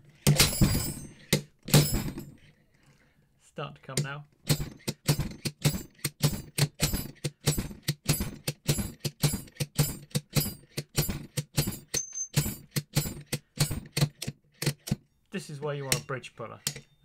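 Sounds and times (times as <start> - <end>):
slide hammer striking metal: 15.8 - 17.0.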